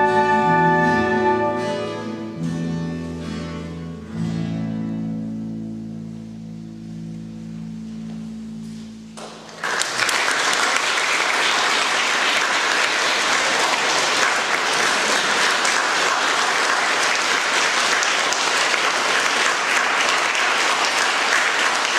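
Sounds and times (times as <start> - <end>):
held music chord: 0.0 - 9.2
audience applause: 9.5 - 21.9.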